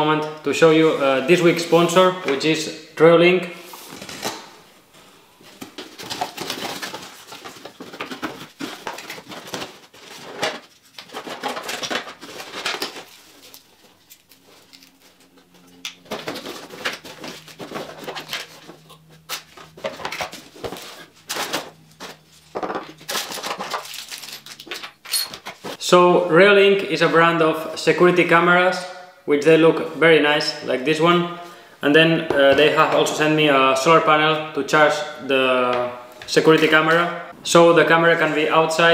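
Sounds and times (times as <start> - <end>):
cardboard and plastic rustling: 3.7 - 25.8.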